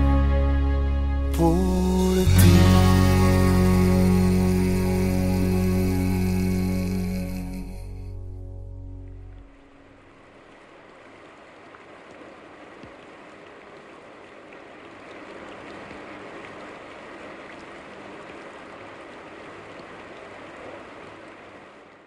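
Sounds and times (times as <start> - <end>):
rain-like rushing noise: 9.4 - 22.0.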